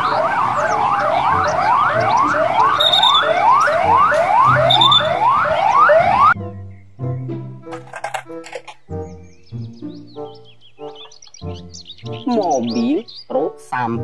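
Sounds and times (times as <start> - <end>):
police siren sweeping: 0.0 - 6.4
second siren tone: 0.0 - 6.4.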